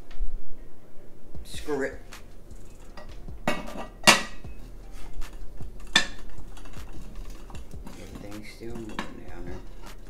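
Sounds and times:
sharp metallic clanks: 2.1 - 10.0
metal pole sections clinking: 2.5 - 10.0.

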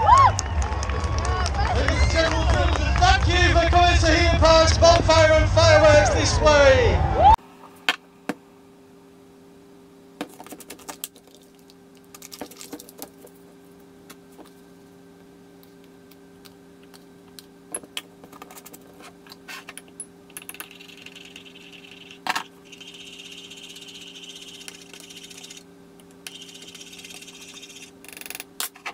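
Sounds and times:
low steady hum: 0.0 - 28.9.

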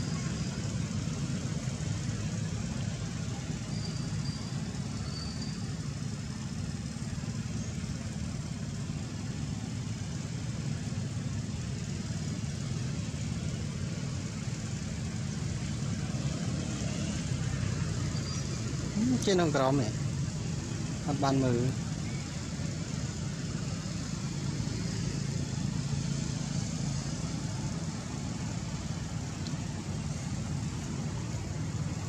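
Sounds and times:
engine idling rumble: 0.0 - 32.0
faint high chirp: 3.4 - 6.0, 18.0 - 19.3, 21.9 - 22.5.

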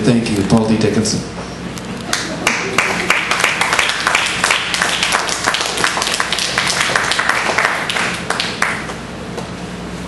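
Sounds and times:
audience applause: 2.1 - 8.9.

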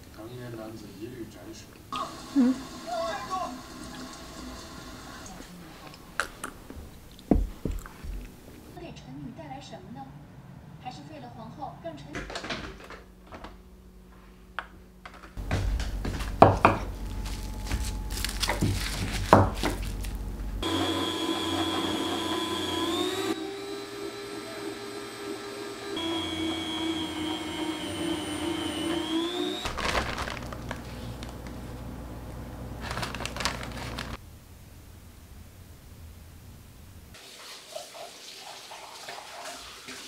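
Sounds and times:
meat slicer motor whine: 2.0 - 5.4, 15.4 - 29.8.

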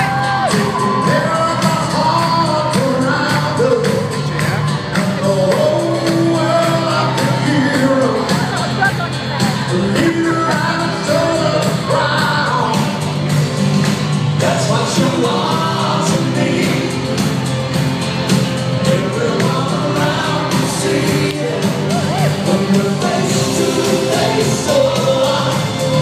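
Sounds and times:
live pop song with band: 0.0 - 26.0.

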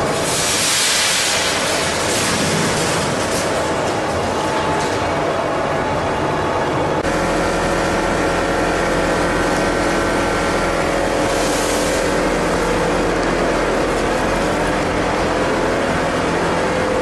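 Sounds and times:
machine drone: 0.0 - 17.0.

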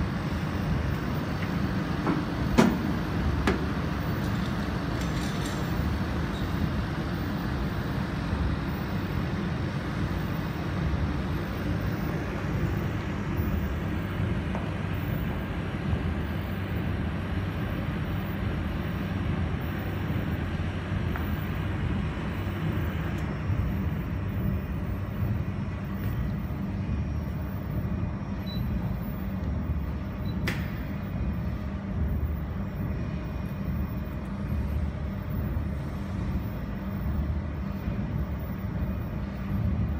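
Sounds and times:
cooling fans and chiller hum: 0.0 - 39.9
sharp click: 30.4 - 30.8.

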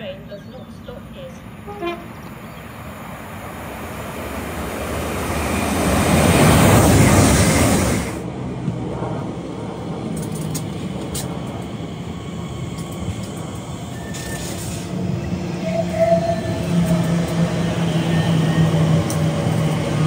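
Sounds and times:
electric train rumble and hum: 0.0 - 20.0
short high squeal: 13.9 - 14.9.

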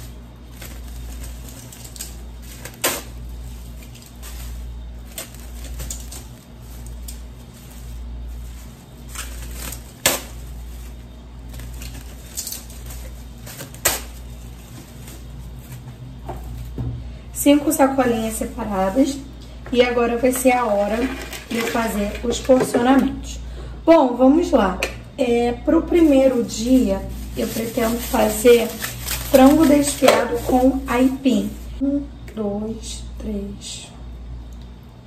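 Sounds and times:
plastic bags rustling and tearing: 0.0 - 16.8, 17.4 - 22.5, 25.3 - 31.8
steady low hum: 0.0 - 35.0
plastic bag snapping: 0.4 - 16.7, 25.9 - 31.6.

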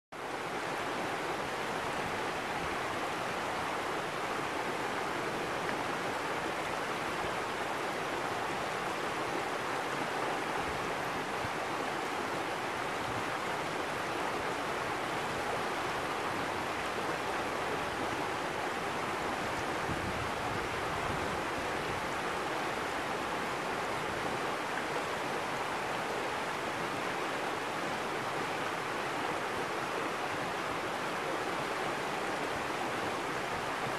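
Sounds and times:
stream rushing over rocks: 0.2 - 33.9.

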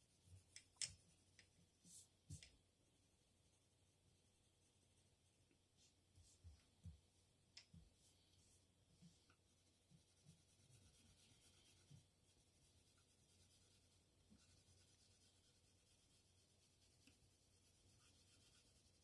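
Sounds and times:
pencil scratching on paper: 9.6 - 19.0.

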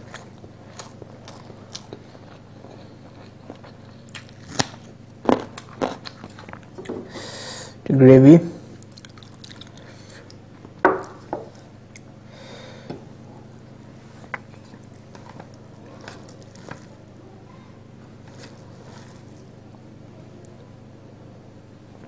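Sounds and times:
hand squishing rice: 18.1 - 19.8.

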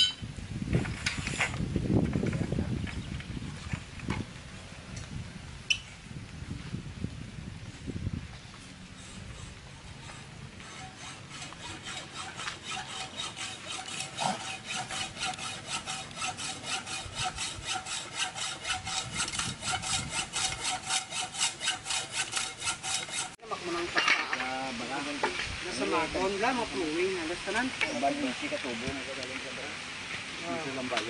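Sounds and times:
hand saw cutting pipe: 9.0 - 23.4.

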